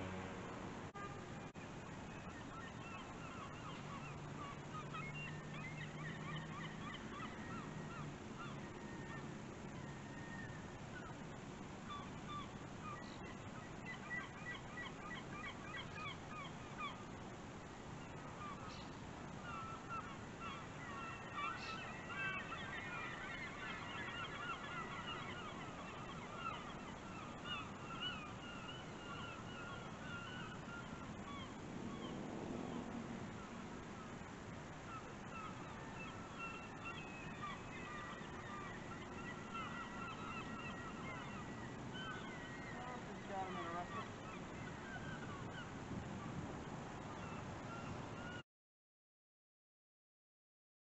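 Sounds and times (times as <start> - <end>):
wind and water hiss: 0.0 - 48.4
flock of birds honking: 19.5 - 32.1, 34.9 - 45.7.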